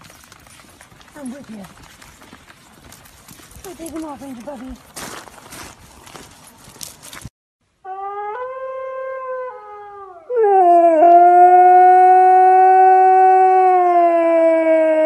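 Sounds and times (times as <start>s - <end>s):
dog howling: 7.9s - 15.0s.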